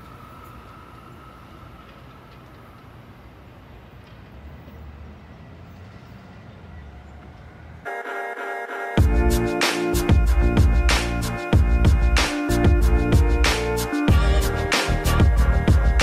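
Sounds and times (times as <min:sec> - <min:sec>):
train rumble: 0:00.0 - 0:07.9
distant train whine: 0:00.0 - 0:16.0.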